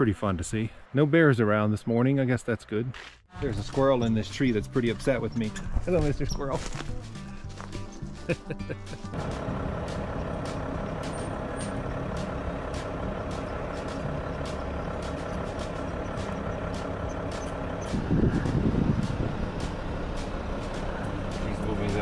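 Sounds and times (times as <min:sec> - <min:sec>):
vehicles idling: 0:07.0 - 0:22.0
louder rumble: 0:09.2 - 0:22.0.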